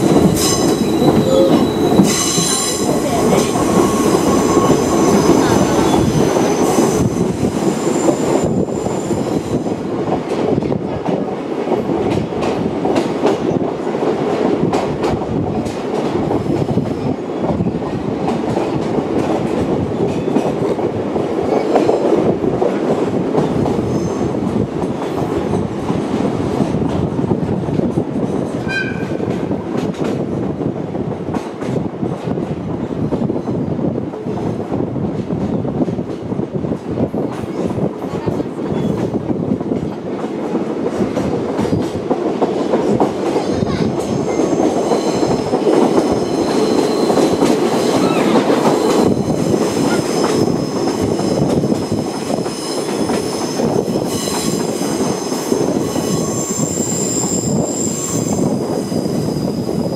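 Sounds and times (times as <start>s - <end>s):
train wheels rumbling on track: 0.0s - 59.9s
high-pitched wheel squeal: 0.1s - 7.2s.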